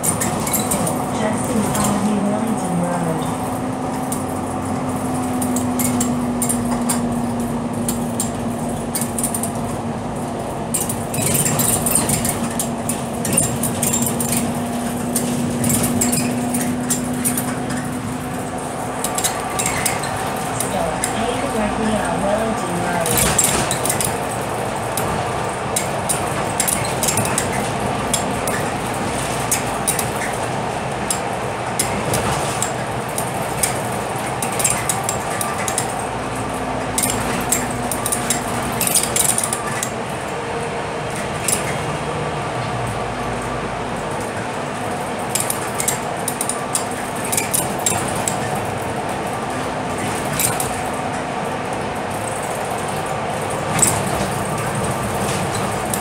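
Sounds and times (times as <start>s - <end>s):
bus engine drone: 0.0s - 56.0s
clinks and rattles of fittings: 3.2s - 40.0s, 43.3s - 50.9s.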